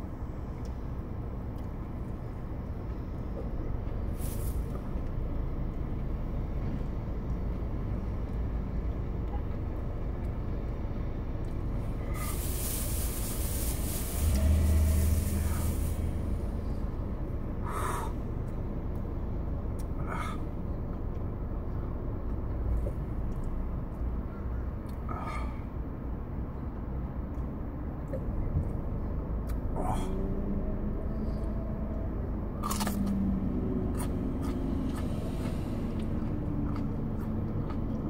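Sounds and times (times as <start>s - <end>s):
low hum: 0.0s - 38.0s
low rumble of vehicle noise: 0.0s - 38.0s
sharp hiss: 12.0s - 16.5s
short breathy sounds: 17.6s - 18.2s.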